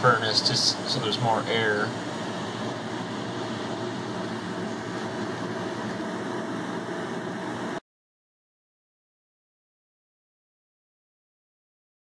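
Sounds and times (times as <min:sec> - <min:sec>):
faint steady hum: 0:00.0 - 0:07.8
wood furnace blower whoosh: 0:00.0 - 0:07.8.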